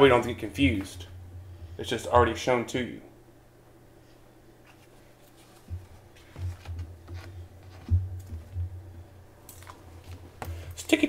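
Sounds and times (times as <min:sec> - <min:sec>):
dull low thumps: 0:07.8 - 0:09.0.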